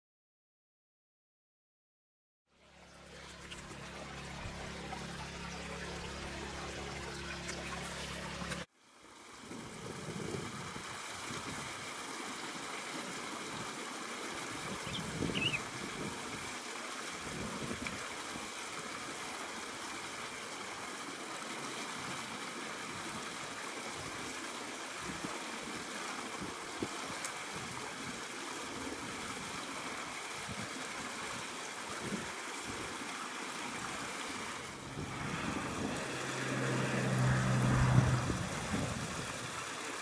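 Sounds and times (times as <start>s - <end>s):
river running over rocks: 10.7s - 40.0s.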